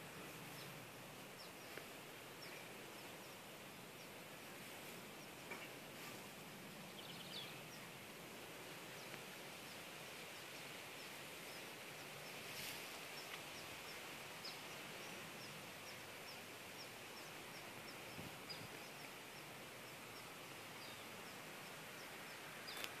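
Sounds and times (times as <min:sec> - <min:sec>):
low hiss: 0:00.0 - 0:23.0.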